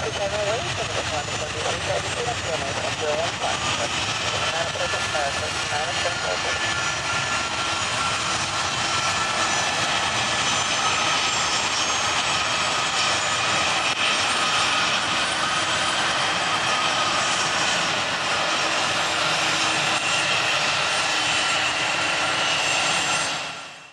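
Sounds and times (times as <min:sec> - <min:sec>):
jet engines roaring at takeoff: 0:00.0 - 0:23.9.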